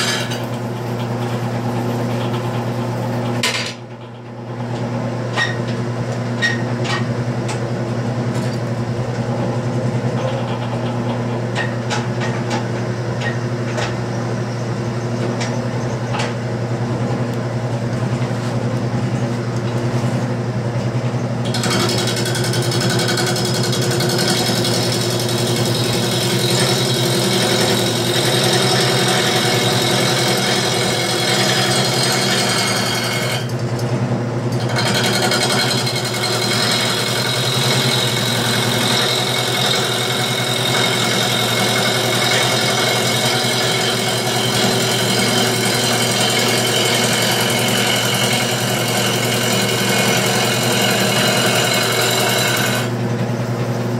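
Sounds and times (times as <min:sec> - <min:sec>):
wood lathe motor humming: 0:21.4 - 0:33.6, 0:34.5 - 0:53.2
turning tool cutting wet wood: 0:21.5 - 0:33.6, 0:34.5 - 0:53.0.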